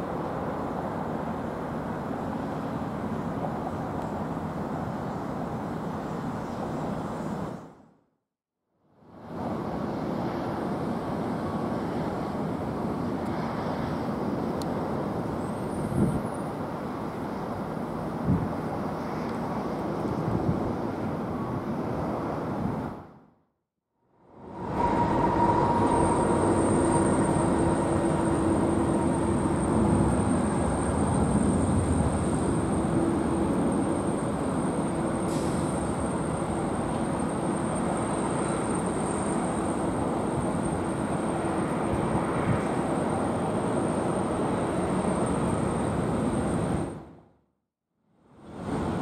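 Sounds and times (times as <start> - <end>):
jet plane landing: 24.2 - 47.0.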